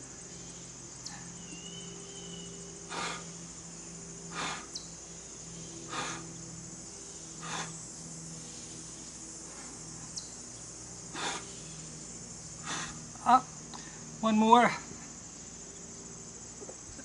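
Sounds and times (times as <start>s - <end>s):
crickets droning: 0.0s - 17.0s
man breathing out hard: 2.9s - 3.4s, 5.9s - 6.4s.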